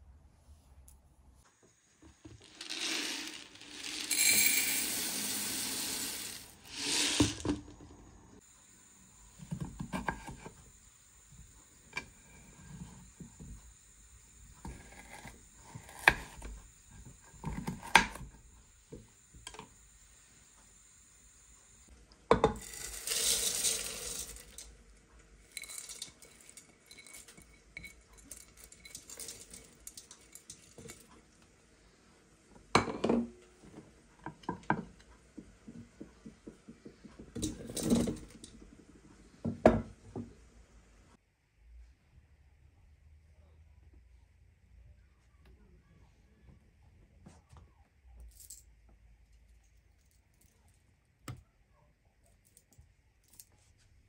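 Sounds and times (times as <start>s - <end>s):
lentils tipped into a pot: 2.1s - 7.8s, 22.3s - 24.7s, 25.5s - 27.5s
lentils poured into a bowl: 2.1s - 8.0s, 22.4s - 24.8s, 25.5s - 31.1s.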